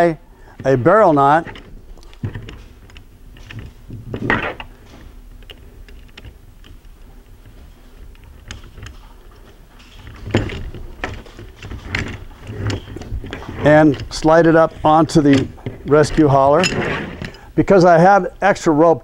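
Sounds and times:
rope rustling and sliding: 6.7 - 17.3.

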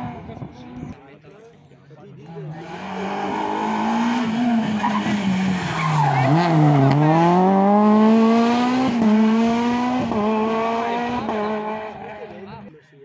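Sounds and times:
rally car engine revving: 2.3 - 12.7.

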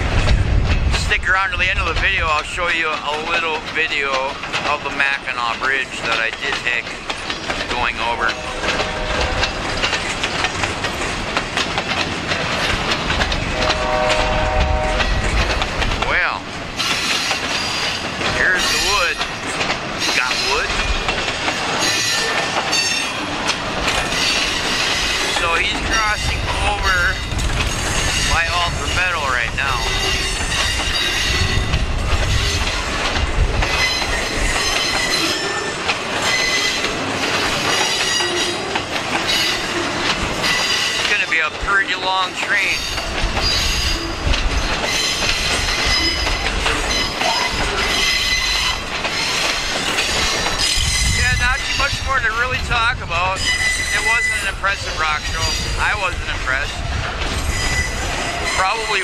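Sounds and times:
freight train wheels clacking: 0.0 - 59.0
low train rumble: 0.0 - 59.0
high wheel squeals: 53.4 - 54.6, 57.4 - 58.9.

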